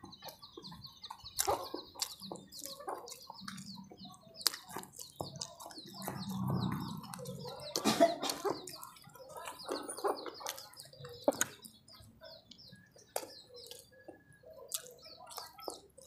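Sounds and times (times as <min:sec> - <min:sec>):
small birds chirping: 0:00.0 - 0:16.0
wet chewing and lip-smacking: 0:00.1 - 0:16.0.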